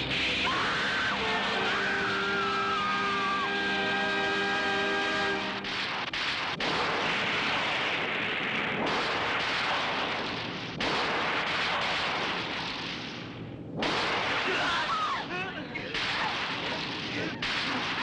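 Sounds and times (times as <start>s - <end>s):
explosion sound effects: 5.6s - 15.0s.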